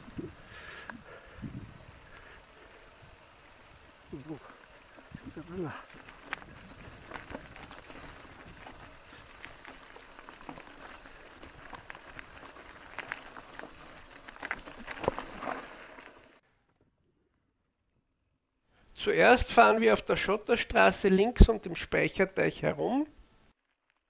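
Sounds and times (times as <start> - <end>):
bike knocking and rattling: 0.0 - 16.4
steady hiss: 0.0 - 16.4
tyres crunching over loose stones: 0.0 - 16.4.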